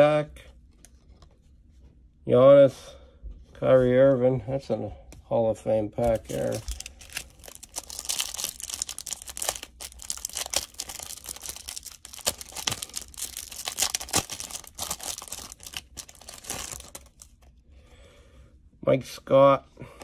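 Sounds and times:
cellophane wrapper crinkling: 0:06.0 - 0:17.5.

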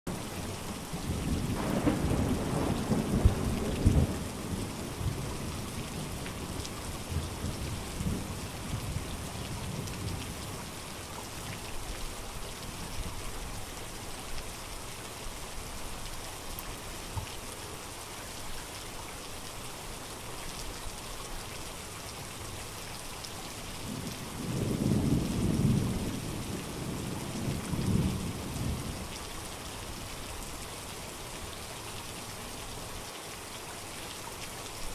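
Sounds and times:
rain hiss: 0:00.1 - 0:34.9
rolling thunder: 0:01.1 - 0:06.4, 0:23.8 - 0:29.0
sharp thunder cracks: 0:01.5 - 0:04.4.

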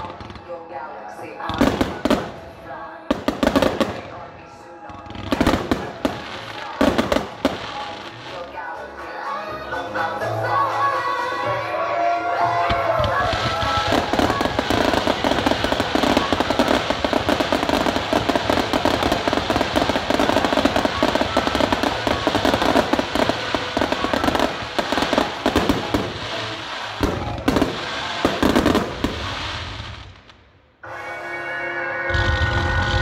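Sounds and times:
fireworks crackling and popping: 0:00.0 - 0:00.7, 0:01.4 - 0:30.6
heavy firework bangs: 0:01.5 - 0:04.4, 0:05.1 - 0:08.4, 0:12.5 - 0:30.4.

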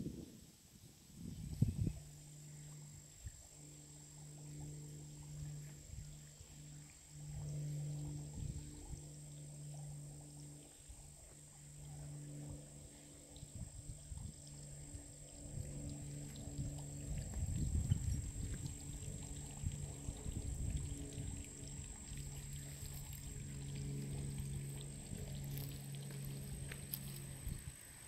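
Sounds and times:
steady low hum: 0:00.0 - 0:28.0
microphone rumble: 0:13.5 - 0:27.7.

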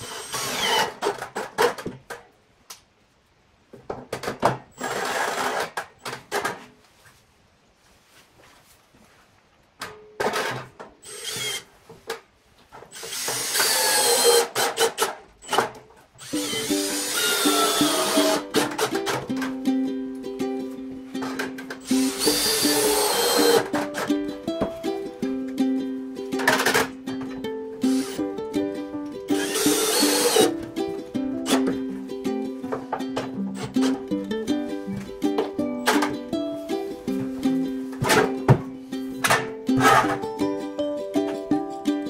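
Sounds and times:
cordless drill into steel sheet: 0:00.0 - 0:01.0, 0:04.8 - 0:05.7, 0:11.0 - 0:11.7, 0:12.9 - 0:15.6, 0:16.2 - 0:18.9, 0:21.8 - 0:23.7, 0:29.4 - 0:30.5
plucked ukulele music: 0:16.3 - 0:42.0.

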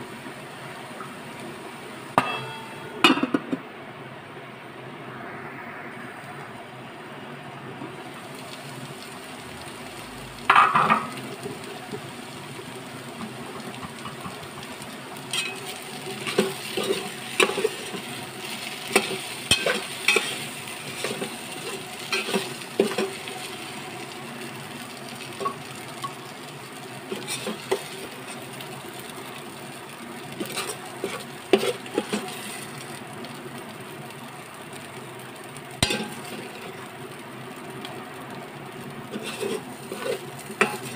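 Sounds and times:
frying sizzle: 0:00.0 - 0:40.9.

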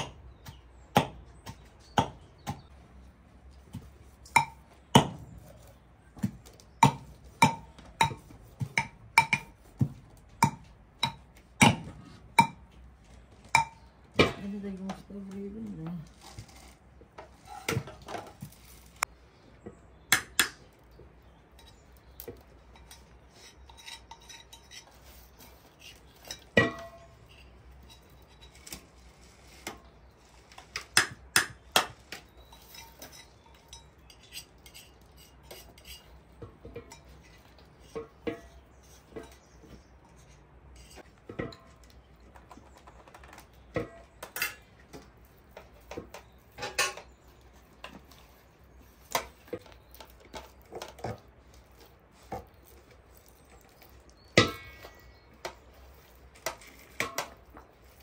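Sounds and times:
metal utensils clinking on dishes: 0:21.5 - 0:29.0, 0:32.0 - 0:41.9, 0:43.8 - 0:48.4.

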